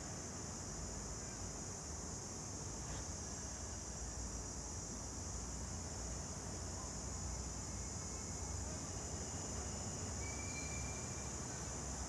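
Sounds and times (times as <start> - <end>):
faint short whistle-like tone: 10.2 - 11.3.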